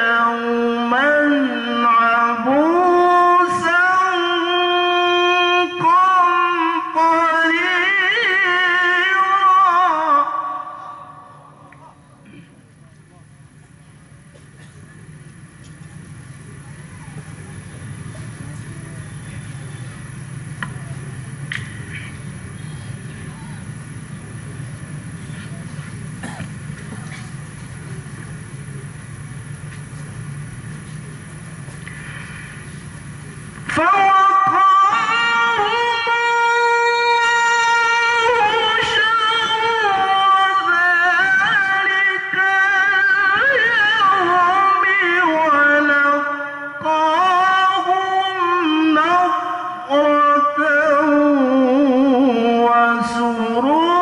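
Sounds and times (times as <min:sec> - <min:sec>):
man reciting melodically into microphone: 0:00.0 - 0:12.5, 0:33.7 - 0:54.0
steady low hum: 0:00.0 - 0:54.0.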